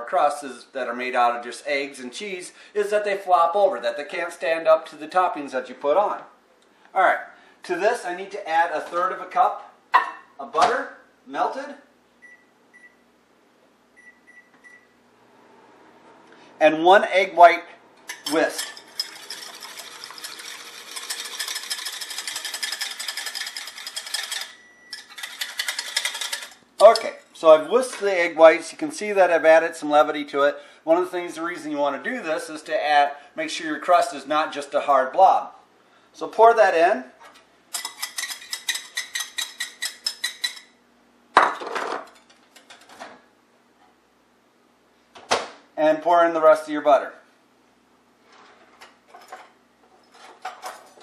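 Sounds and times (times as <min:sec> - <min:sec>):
wire whisk clattering in bowl: 0:18.1 - 0:27.2, 0:37.7 - 0:40.7.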